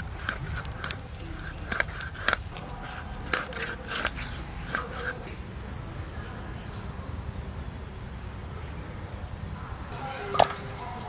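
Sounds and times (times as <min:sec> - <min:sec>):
knife crunching through fish scales: 0:00.0 - 0:05.3.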